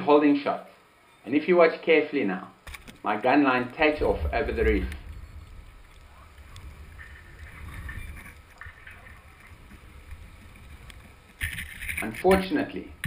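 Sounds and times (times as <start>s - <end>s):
faint uneven hiss: 0.0s - 13.0s
underwater rumble of moving water: 3.5s - 11.3s.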